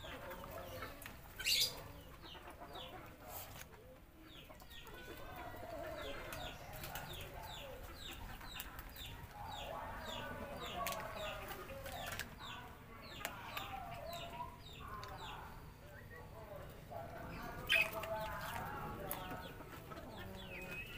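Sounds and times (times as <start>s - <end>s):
chickens clucking: 0.0s - 20.9s
small bird chirping: 1.4s - 2.4s.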